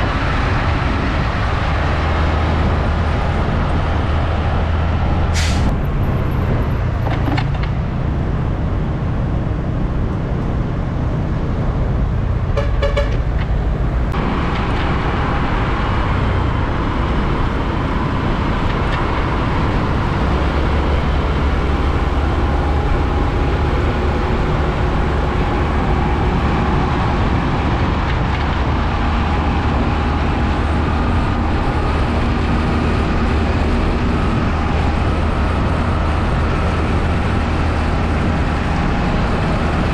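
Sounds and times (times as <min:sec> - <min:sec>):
truck engines rumbling: 0:00.0 - 0:39.9
tyre and road noise: 0:00.0 - 0:39.9
vehicle horn toot: 0:12.6 - 0:13.2.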